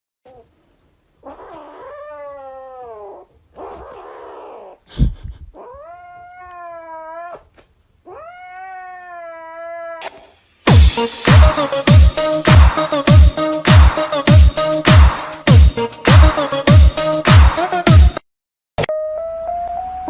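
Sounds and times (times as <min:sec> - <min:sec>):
kitten yowling: 0:01.2 - 0:04.8, 0:05.6 - 0:10.1.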